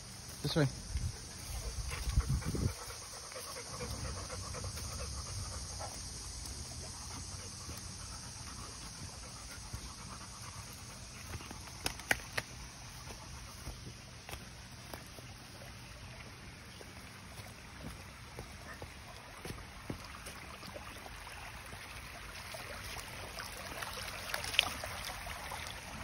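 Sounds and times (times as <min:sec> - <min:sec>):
dog panting: 0:01.1 - 0:11.6.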